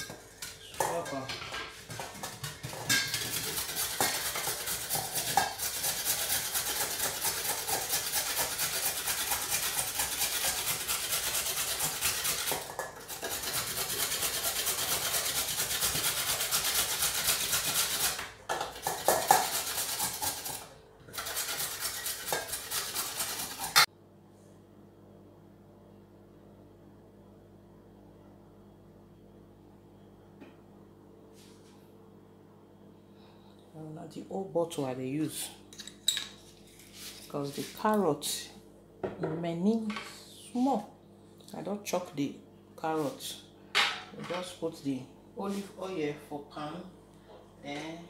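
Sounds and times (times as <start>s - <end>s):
grater clinking on bowl: 1.9s - 23.9s
carrot grated on metal grater: 2.6s - 23.9s.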